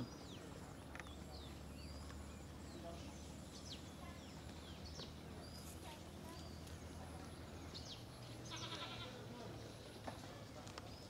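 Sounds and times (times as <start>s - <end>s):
animal bleat: 8.5s - 9.2s.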